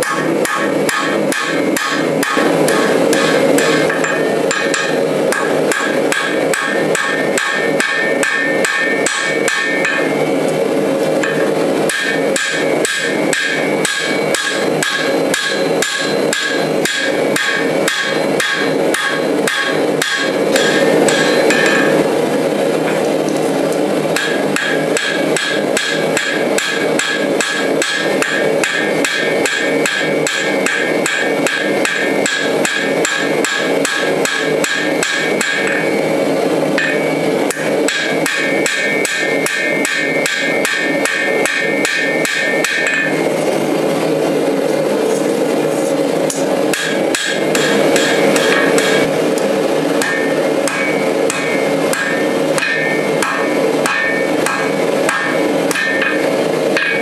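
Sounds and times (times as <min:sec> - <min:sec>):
high anvil ring: 0:00.0 - 0:10.2, 0:11.2 - 0:22.2, 0:36.8 - 0:43.3, 0:50.0 - 0:57.0
hammer striking metal on anvil: 0:00.0 - 0:10.5, 0:11.2 - 0:22.2, 0:24.1 - 0:43.3, 0:46.3 - 0:49.2, 0:49.9 - 0:57.0.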